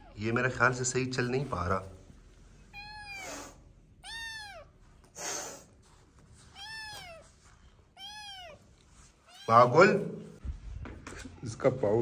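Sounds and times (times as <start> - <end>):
kitten meowing: 2.7 - 4.7, 6.5 - 7.3, 7.9 - 8.6, 9.3 - 9.7.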